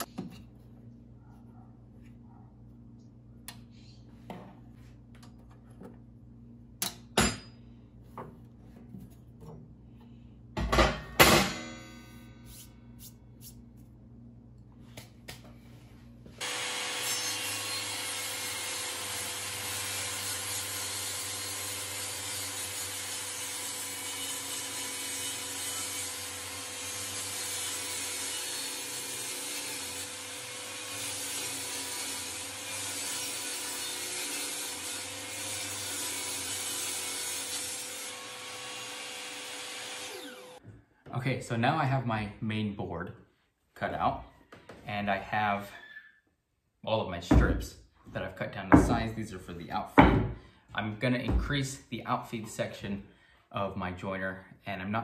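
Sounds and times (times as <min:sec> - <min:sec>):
loud metal clanks ringing: 0:10.8 - 0:12.2.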